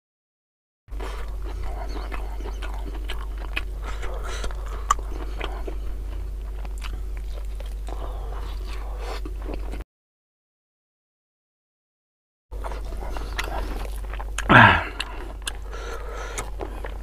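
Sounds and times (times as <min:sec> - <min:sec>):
man chewing and biting: 0:00.9 - 0:09.8, 0:12.6 - 0:17.0
steady low hum: 0:00.9 - 0:09.8, 0:12.5 - 0:17.0.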